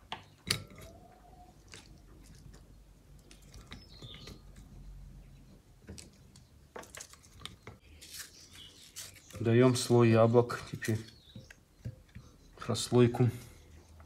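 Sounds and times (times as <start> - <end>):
onion crunching: 5.8 - 10.0.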